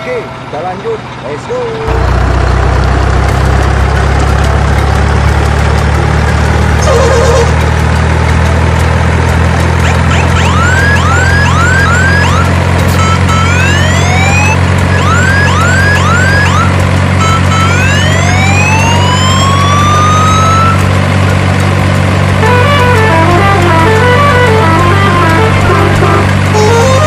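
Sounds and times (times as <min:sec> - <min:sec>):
truck engine drone: 0:00.0 - 0:27.0
electronic background music: 0:09.6 - 0:20.8, 0:22.3 - 0:27.0.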